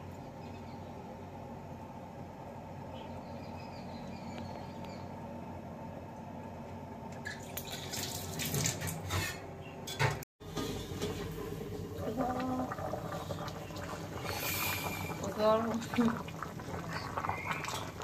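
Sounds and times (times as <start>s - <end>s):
stew bubbling in pan: 10.4s - 18.0s.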